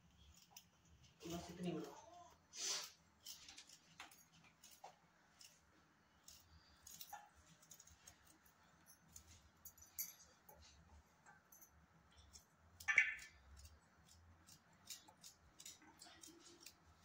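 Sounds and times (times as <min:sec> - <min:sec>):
knife cutting carrots: 0:13.2 - 0:17.0.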